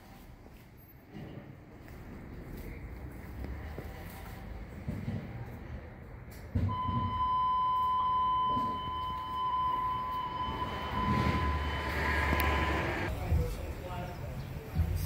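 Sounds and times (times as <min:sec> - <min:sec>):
electronic buzzer tone: 0:06.7 - 0:13.1.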